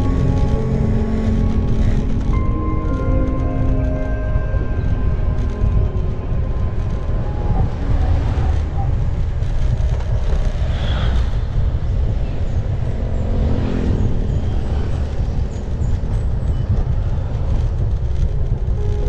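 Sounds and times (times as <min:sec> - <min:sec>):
faint engine: 0:00.0 - 0:19.0
wind rumbling on microphone: 0:00.0 - 0:19.0.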